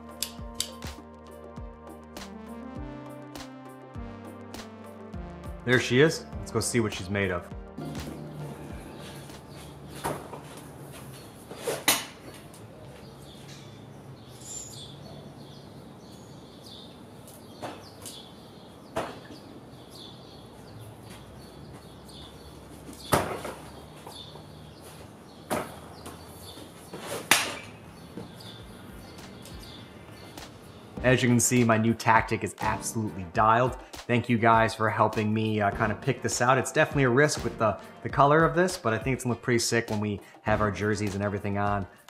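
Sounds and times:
lacrosse balls striking goal: 23.0 - 23.6, 27.2 - 27.8.

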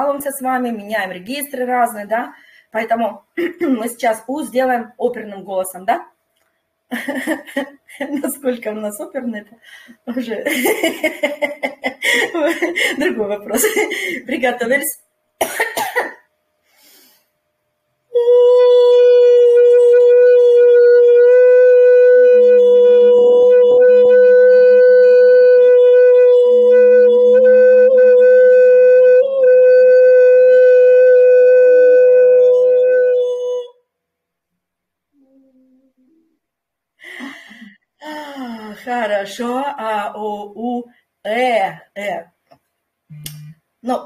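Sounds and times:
woman singing operatic high note: 18.1 - 28.3.

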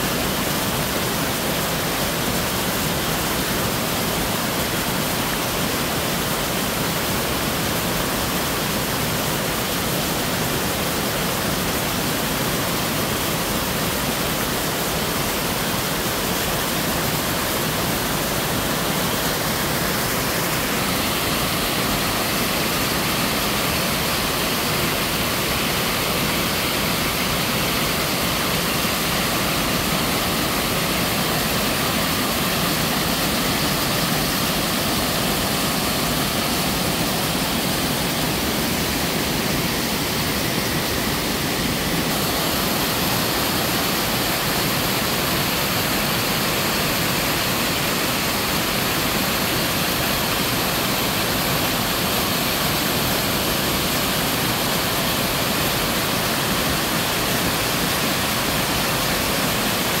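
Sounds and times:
waterfall splashing over boulders: 0.0 - 60.0.

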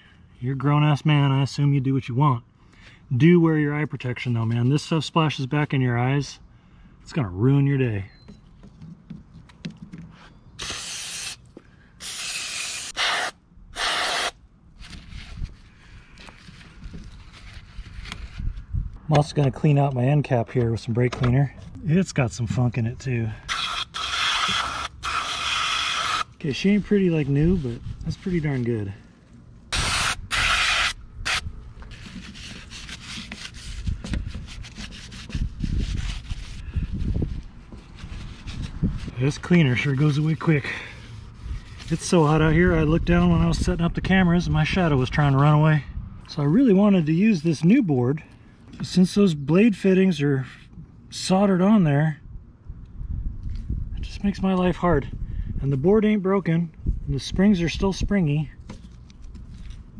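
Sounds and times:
gloved hands handling part: 8.1 - 10.4, 14.8 - 19.3, 31.8 - 40.4
aerosol spray hissing: 10.6 - 11.4, 12.0 - 14.3
spray can hissing: 10.6 - 11.4, 12.0 - 14.4, 23.5 - 26.3, 29.8 - 31.4
rag rubbing and wiping: 31.9 - 40.5.

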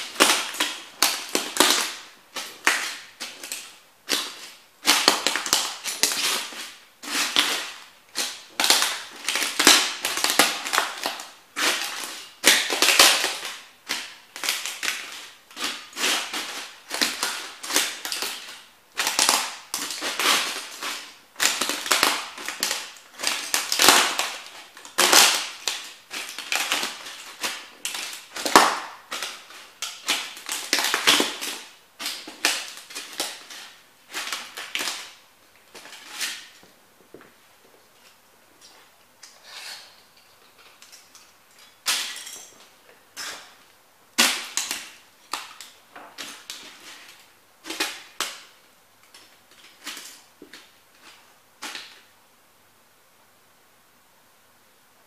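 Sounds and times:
boots crunching broken model houses: 0.0 - 38.9.

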